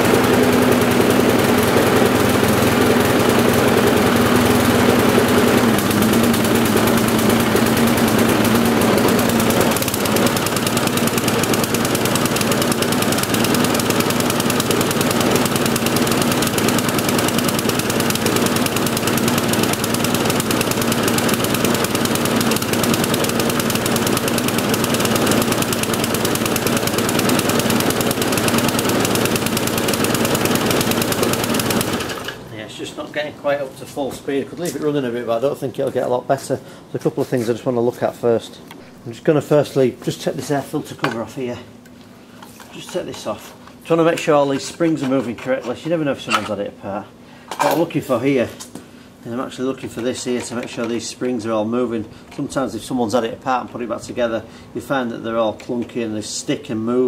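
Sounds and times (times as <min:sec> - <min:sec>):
lawnmower engine running: 0:00.0 - 0:32.6.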